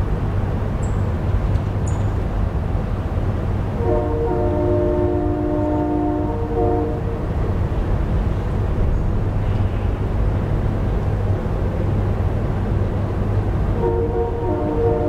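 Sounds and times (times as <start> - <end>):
synthesized train horn chord: 3.8 - 7.4, 13.7 - 15.0.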